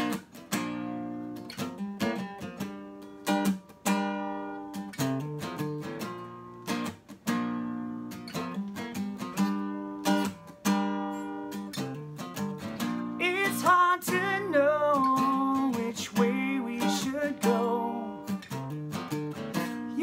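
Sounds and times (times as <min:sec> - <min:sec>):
acoustic guitar strummed: 0:00.0 - 0:20.0.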